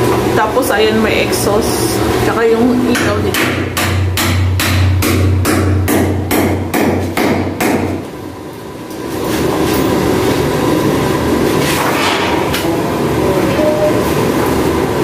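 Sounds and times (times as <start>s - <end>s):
hammer striking chisel into concrete: 3.0s - 8.0s.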